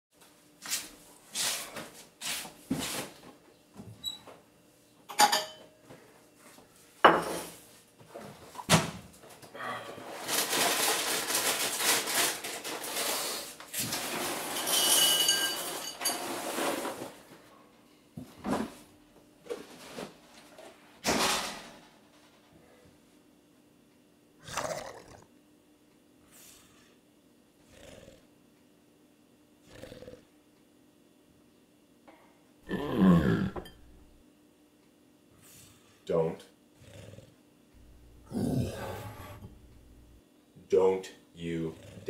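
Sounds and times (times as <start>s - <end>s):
dishes being set down: 5.1s - 5.7s, 7.0s - 7.6s, 14.5s - 16.3s.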